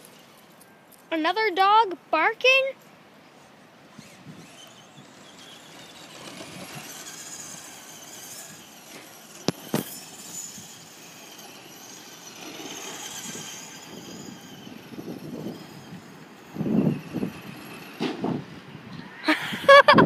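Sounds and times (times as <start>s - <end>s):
toy truck motor whining: 3.8s - 18.9s.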